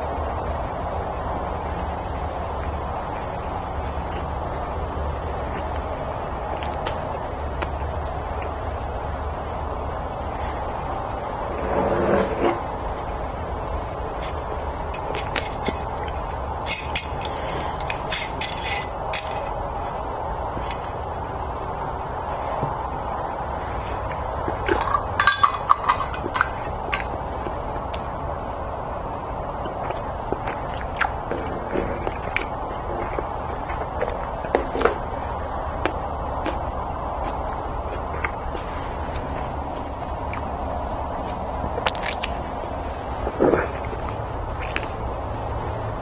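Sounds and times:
background hiss: 0:00.0 - 0:46.0
low background hum: 0:00.0 - 0:46.0
lip smacks and mouth clicks: 0:05.4 - 0:08.6, 0:29.6 - 0:35.1, 0:35.8 - 0:42.6, 0:43.2 - 0:45.7.

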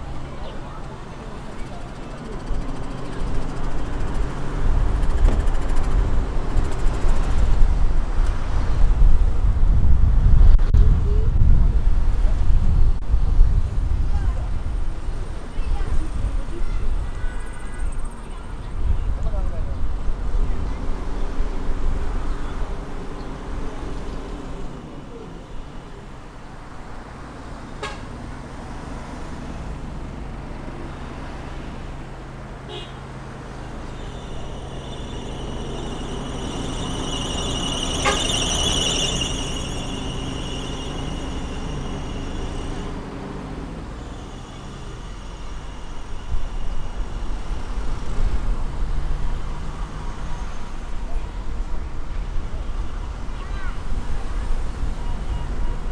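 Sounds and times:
car engine hum and road noise: 0:00.0 - 0:55.9
high-pitched squeal: 0:33.5 - 0:48.1.

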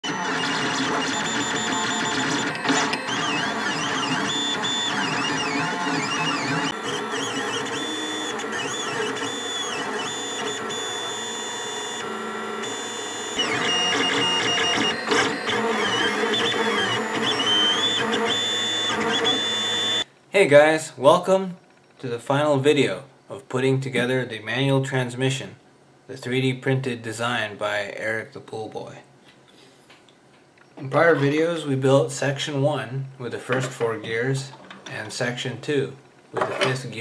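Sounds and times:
stepper motors whining: 0:00.0 - 0:20.0.

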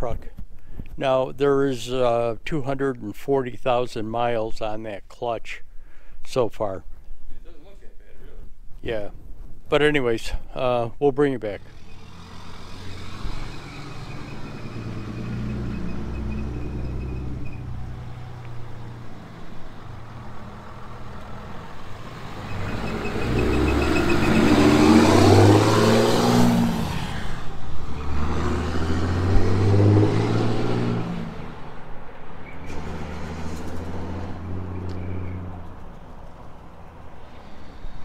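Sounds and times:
pickup truck accelerating past: 0:11.6 - 0:37.9.

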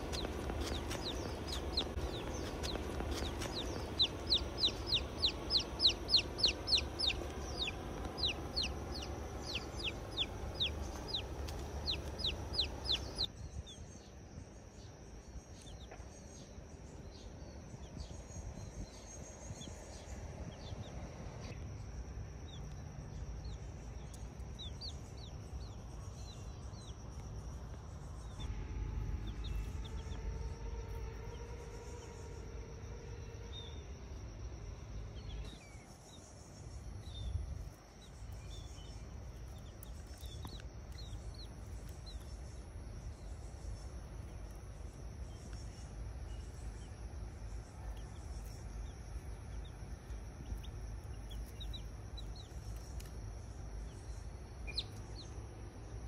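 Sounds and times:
baby chick peeping: 0:00.0 - 0:13.8, 0:38.4 - 0:42.4, 0:49.5 - 0:53.1, 0:54.6 - 0:55.3
low wind rumble: 0:00.0 - 0:56.0
humming tone with overtones: 0:27.9 - 0:35.6
high insect-like drone: 0:28.4 - 0:35.0.

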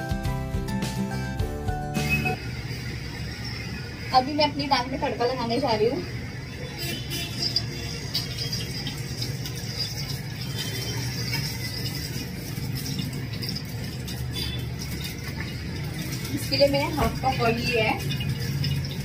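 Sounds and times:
oil pouring into metal pot: 0:08.1 - 0:17.4, 0:18.0 - 0:19.0.

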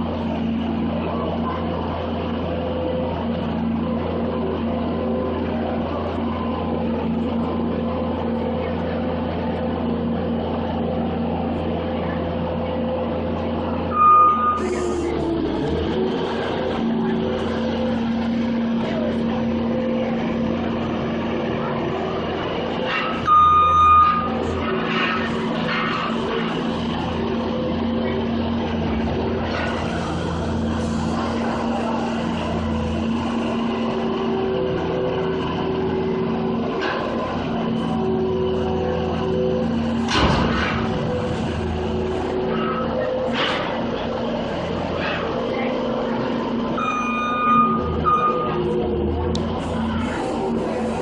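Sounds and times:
diesel engine running: 0:00.0 - 0:51.0
backup alarm beep: 0:23.3 - 0:24.3, 0:46.8 - 0:48.6.

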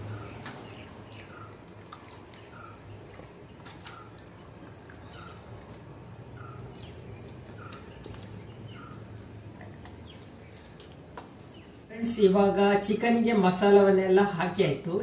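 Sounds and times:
hands squelching raw chicken: 0:00.0 - 0:11.9.

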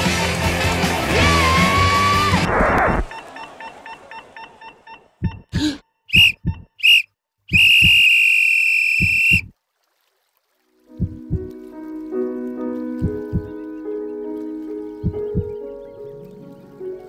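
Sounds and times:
short high beeps: 0:03.1 - 0:09.5
heartbeat thumps: 0:05.2 - 0:06.8, 0:07.5 - 0:08.1, 0:09.0 - 0:09.5, 0:11.0 - 0:11.5, 0:13.0 - 0:13.6, 0:15.0 - 0:15.6.

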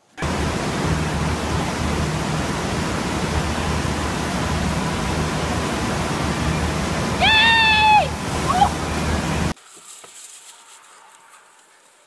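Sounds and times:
low hum: 0:00.1 - 0:09.6
rushing water of wave: 0:00.2 - 0:09.6.

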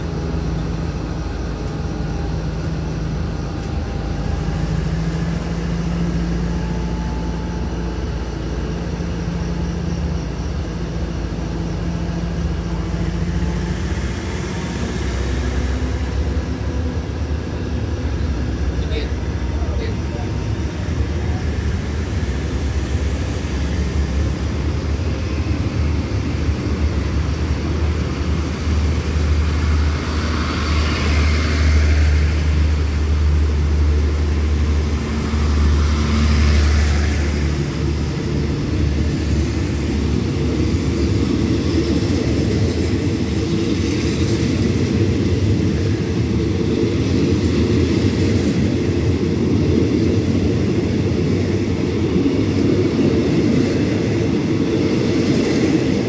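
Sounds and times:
train carriages rumbling past: 0:00.0 - 0:56.0.

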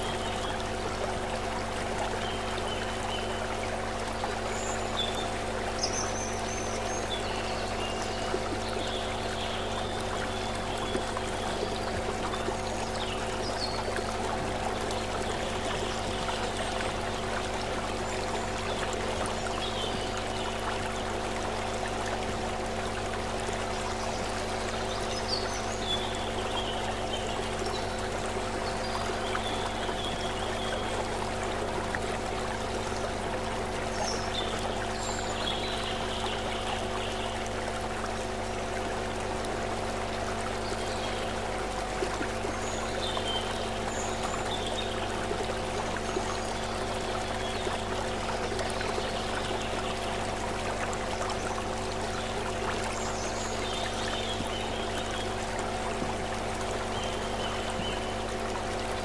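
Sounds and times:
low hum of held tones: 0:00.0 - 0:59.0.

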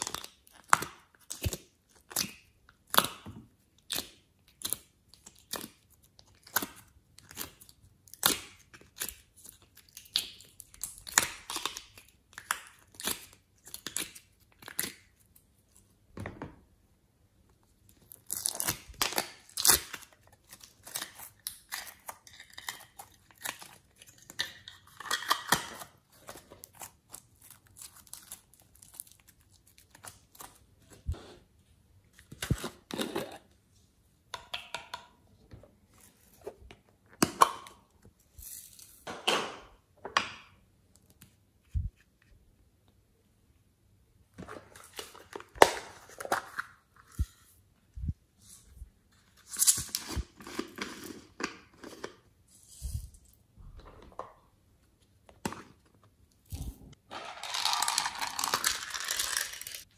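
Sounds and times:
slime crackling and popping: 0:56.5 - 0:59.9.

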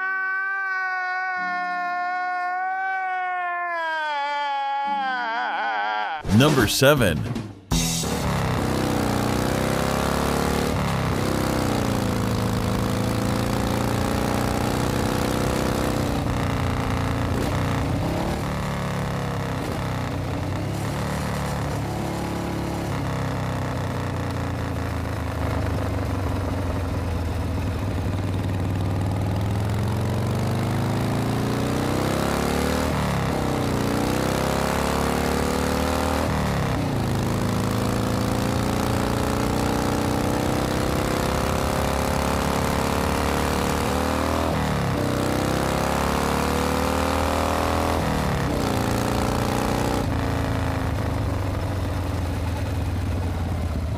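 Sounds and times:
vehicle engine revving: 0:08.0 - 0:25.7, 0:29.3 - 0:51.6.

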